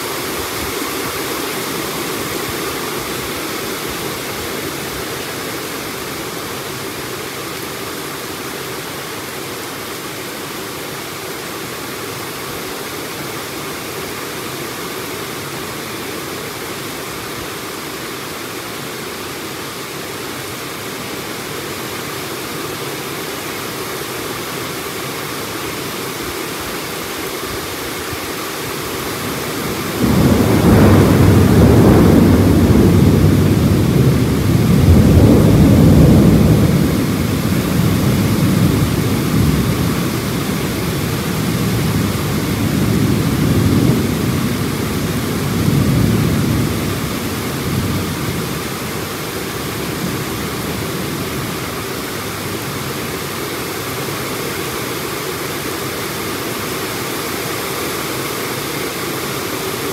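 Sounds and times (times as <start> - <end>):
heavy rain: 0.0 - 59.9
thunder rumbling: 29.2 - 51.8.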